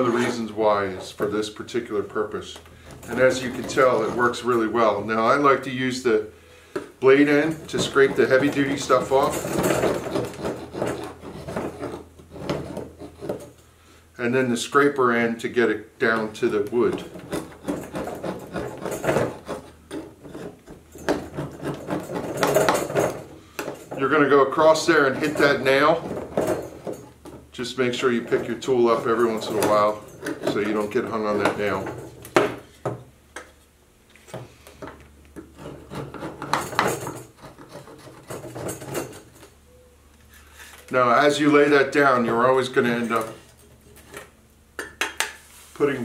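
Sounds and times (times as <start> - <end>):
metal tool scraping wood: 0.0 - 5.7, 7.0 - 13.6, 16.2 - 32.7, 35.4 - 39.5.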